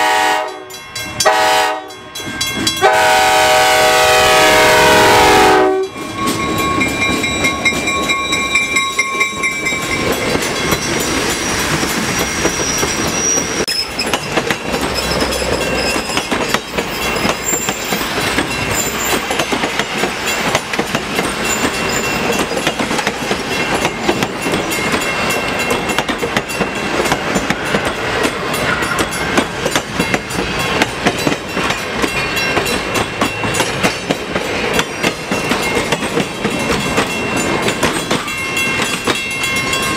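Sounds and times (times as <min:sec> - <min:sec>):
locomotive horn blast: 0:00.0 - 0:02.0, 0:02.8 - 0:06.0
train wheels rumbling on rail: 0:00.0 - 0:39.9.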